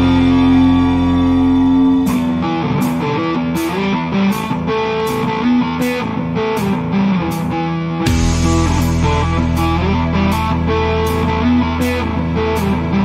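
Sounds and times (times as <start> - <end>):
heavy low bass: 0.0 - 3.6, 8.1 - 13.0
electric guitar melody: 0.0 - 13.0
steady drum beat: 8.1 - 12.0.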